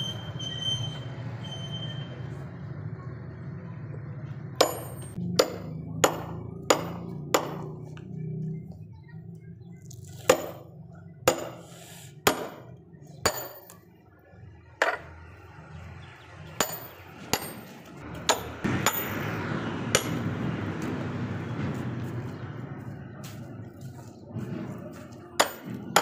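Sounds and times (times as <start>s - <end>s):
hammer striking steel wedge: 4.6s - 7.8s, 10.2s - 10.7s, 11.3s - 13.8s, 16.6s - 19.3s, 19.9s - 20.2s, 25.4s - 26.0s.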